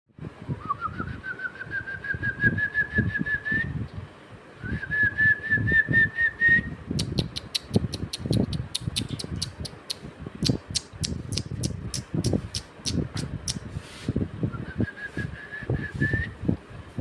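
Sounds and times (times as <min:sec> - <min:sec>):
sharp clicks: 0:07.0 - 0:13.6.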